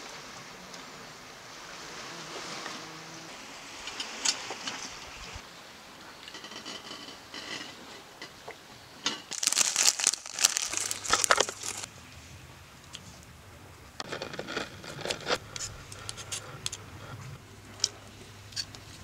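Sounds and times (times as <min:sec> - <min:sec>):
plastic packet crinkling: 0:09.3 - 0:11.9.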